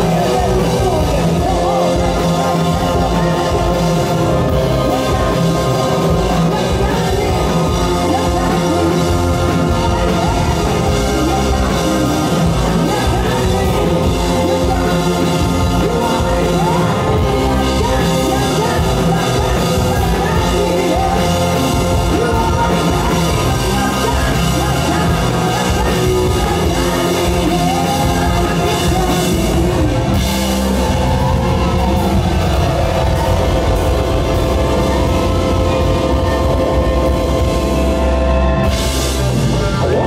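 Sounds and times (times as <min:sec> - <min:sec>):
woman singing into a microphone: 0:00.0 - 0:30.4
drums: 0:00.0 - 0:40.0
electric guitar: 0:00.0 - 0:40.0
keyboard: 0:00.0 - 0:40.0.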